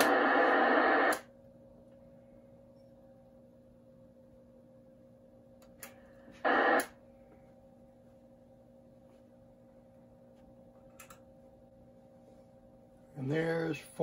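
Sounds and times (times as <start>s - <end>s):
shortwave radio static: 0.0s - 1.3s, 6.3s - 7.0s
low steady hum: 0.0s - 14.0s.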